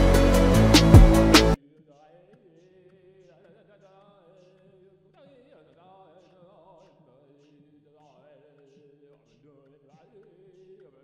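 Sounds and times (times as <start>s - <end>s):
person singing: 0.0s - 1.6s.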